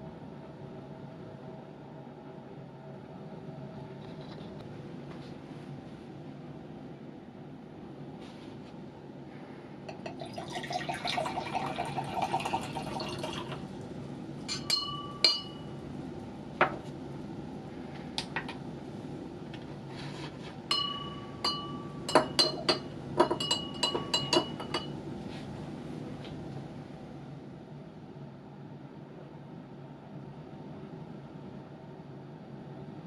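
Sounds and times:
liquid pouring into glass beaker: 9.9s - 13.7s
glass clinks and taps: 14.5s - 15.6s, 20.7s - 25.0s.

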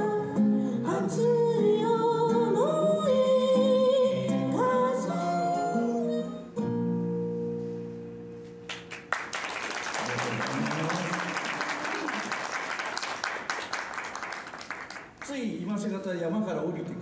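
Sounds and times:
person singing with acoustic guitar: 0.0s - 7.6s
audience applauding: 8.7s - 15.4s.

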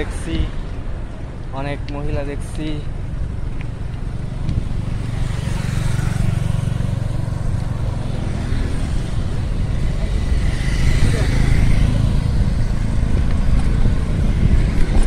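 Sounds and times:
road traffic: 0.0s - 15.0s
motorcycles passing close by: 2.3s - 15.0s
steady low rumble: 6.8s - 15.0s.

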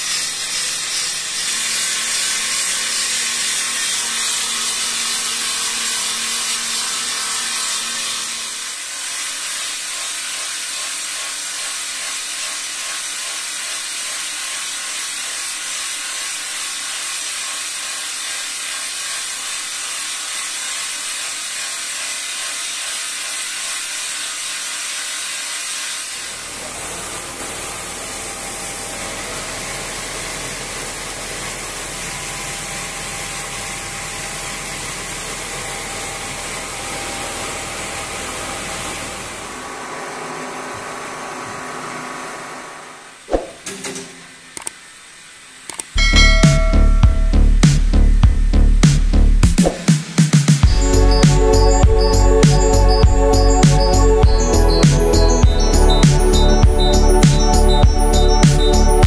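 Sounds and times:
stone grinding machine: 0.0s - 42.0s, 45.9s - 48.1s, 50.6s - 59.0s.

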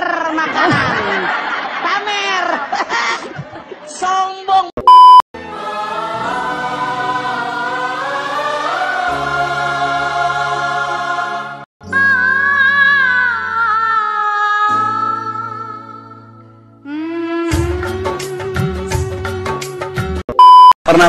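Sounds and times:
choir-like sung melody: 5.4s - 16.2s.

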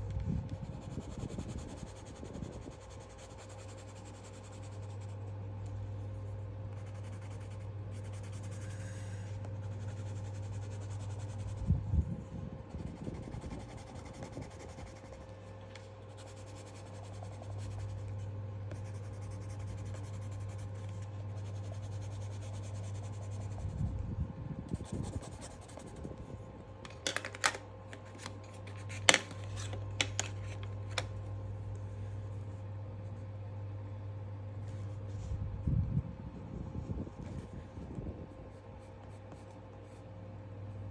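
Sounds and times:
steady low hum: 0.0s - 40.9s
pencil scratching on paper: 0.7s - 5.3s, 6.2s - 11.6s, 12.7s - 15.3s, 16.1s - 23.8s.

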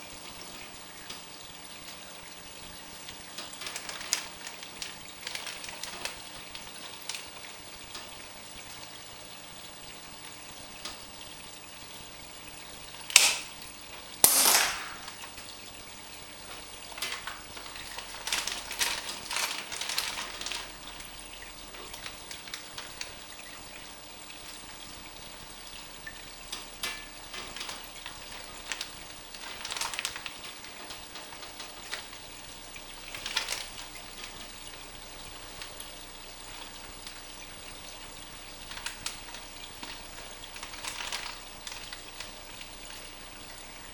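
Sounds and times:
aquarium water trickling: 0.0s - 43.9s
sharp snaps: 13.1s - 13.5s, 14.2s - 15.2s.

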